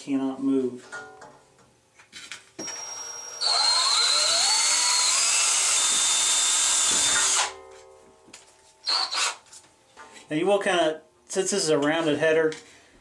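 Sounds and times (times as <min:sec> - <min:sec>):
electric drill drilling metal: 0:02.6 - 0:07.6, 0:08.8 - 0:09.4.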